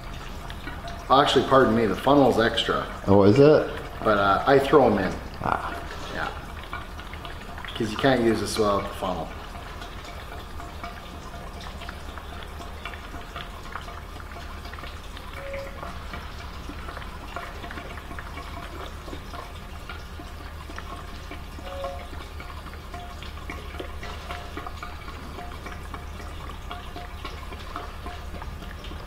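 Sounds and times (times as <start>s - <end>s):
fuel pouring into a tank: 0.0s - 29.0s
low shop hum: 0.0s - 29.0s
small trickling ticks: 8.9s - 29.0s.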